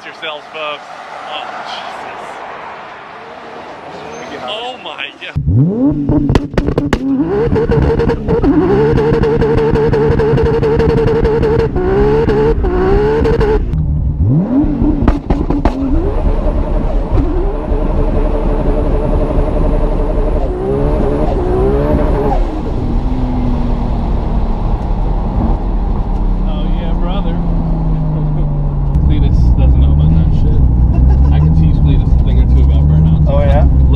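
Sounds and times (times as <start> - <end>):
car engine accelerating hard: 5.4 - 33.9
exhaust pops and cracks: 6.2 - 7.2, 15.0 - 15.8.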